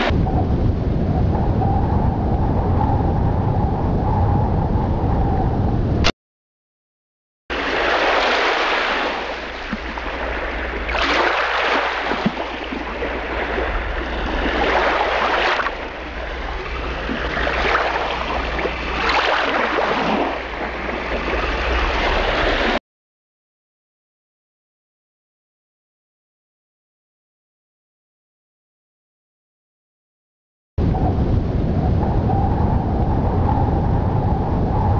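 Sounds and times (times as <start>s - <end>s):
sea waves breaking on shore: 7.5s - 22.8s.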